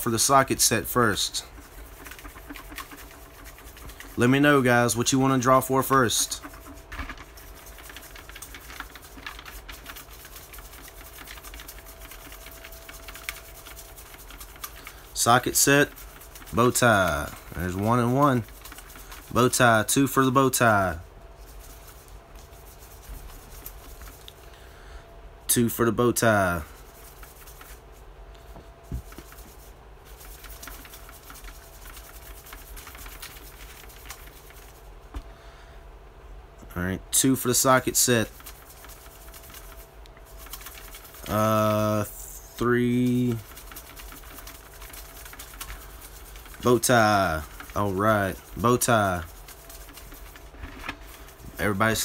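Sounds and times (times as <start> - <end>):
paper slips rattling in plastic bucket: 0.0 - 24.3, 26.3 - 27.8, 28.9 - 34.9, 37.4 - 52.0
low room hum: 0.0 - 52.0.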